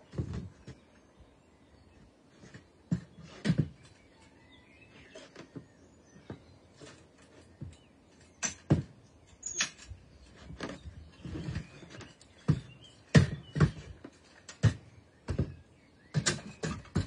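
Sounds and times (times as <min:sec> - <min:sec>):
knocks and clunks of tools: 0:06.3 - 0:17.0.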